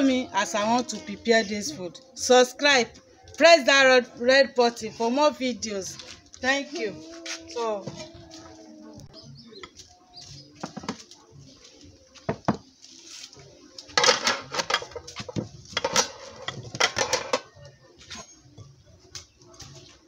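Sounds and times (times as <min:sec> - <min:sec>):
dishes clattering on a table: 0:10.6 - 0:11.0, 0:12.3 - 0:12.7, 0:14.0 - 0:17.6.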